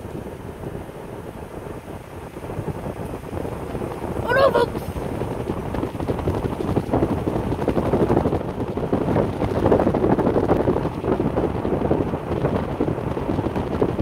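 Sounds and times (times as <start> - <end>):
vehicle rumble: 0.0 - 14.0
wind buffeting microphone: 0.0 - 14.0.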